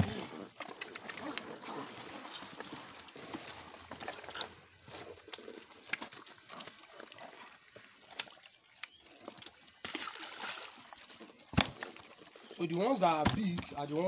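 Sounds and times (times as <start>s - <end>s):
small clicks of fish and net: 0.3s - 14.0s
wet slaps of squirming fish: 5.3s - 6.7s, 8.1s - 10.5s, 11.5s - 12.0s.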